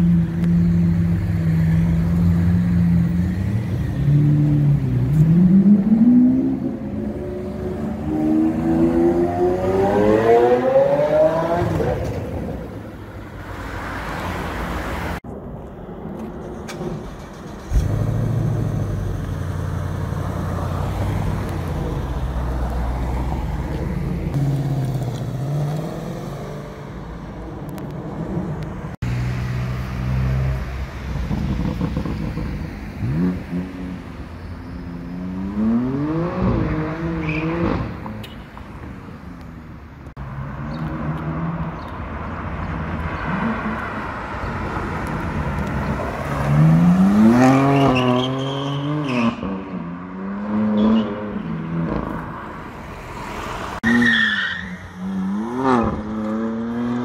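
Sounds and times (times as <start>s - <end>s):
engine revving: 3.0s - 12.6s, 35.1s - 38.0s, 45.1s - 49.5s.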